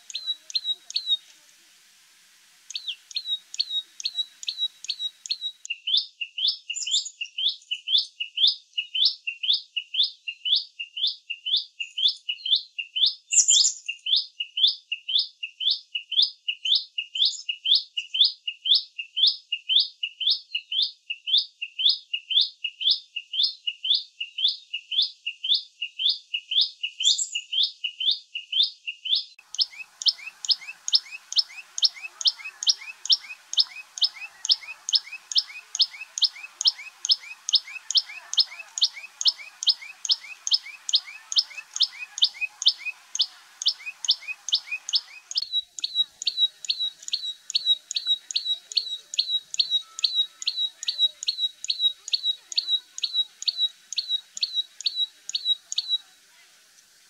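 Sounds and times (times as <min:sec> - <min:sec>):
bird calling sharp high notes: 0:02.7 - 0:05.7, 0:29.4 - 0:55.9.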